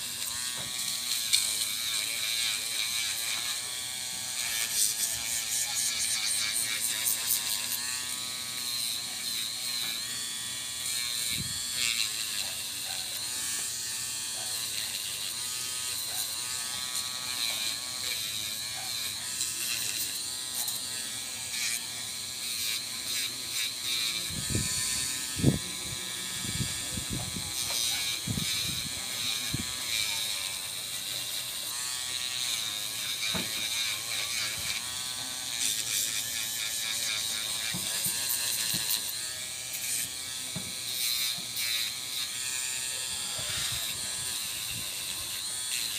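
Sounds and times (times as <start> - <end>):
nail drill motor whine: 0.0 - 45.9
gritty sanding hiss: 17.0 - 45.9.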